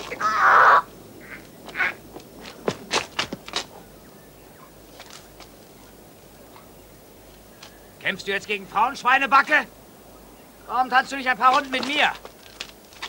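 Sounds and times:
woman's strangled scream: 0.2s - 0.9s.

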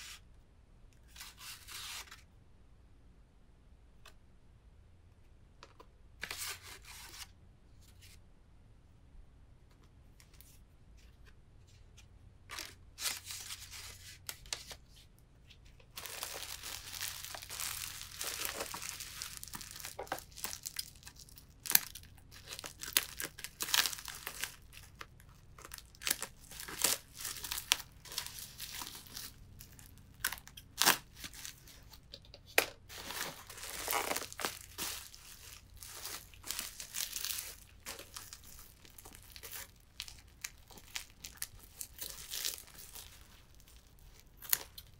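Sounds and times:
bubble wrap crinkling and tearing: 12.5s - 14.8s, 15.9s - 32.2s, 32.8s - 44.9s.

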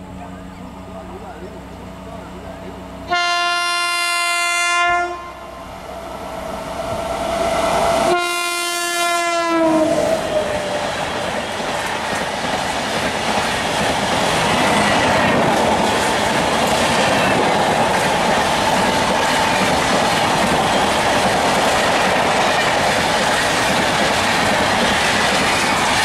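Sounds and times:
locomotive horn blasts: 3.1s - 5.6s, 7.4s - 10.8s
train wheels clattering on rails: 10.0s - 26.0s.

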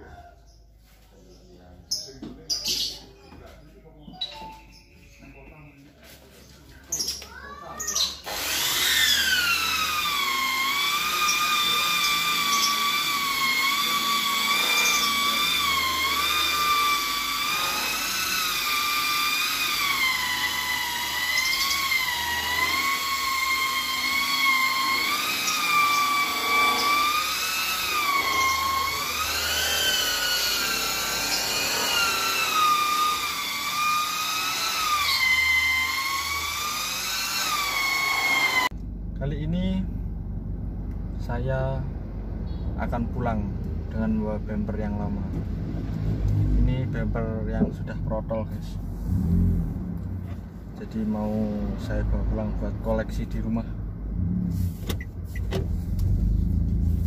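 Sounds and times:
rotary polisher motor whine: 8.3s - 38.7s.

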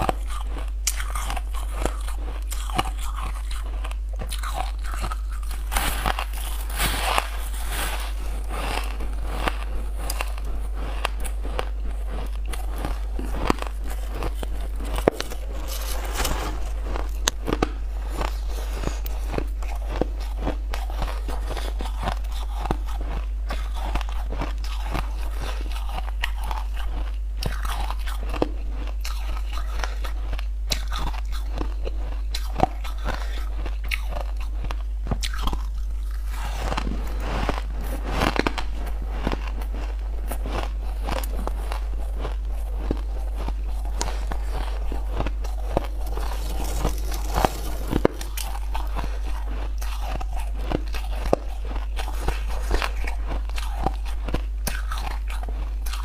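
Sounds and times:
steady low hum: 0.0s - 56.0s
crunching ice: 42.2s - 54.0s.

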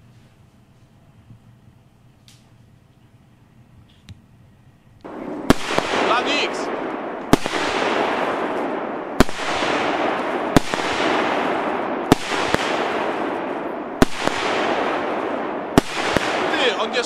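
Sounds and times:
firework bangs: 5.0s - 17.0s.

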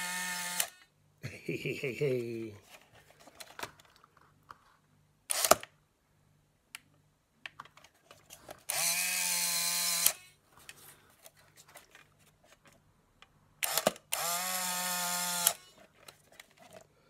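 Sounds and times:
camera film motor and gears running: 0.0s - 0.7s, 8.7s - 10.2s, 13.6s - 15.6s.

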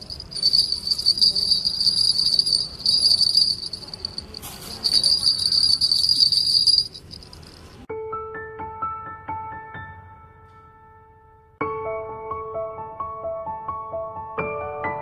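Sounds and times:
small bells jingling: 0.0s - 7.8s.

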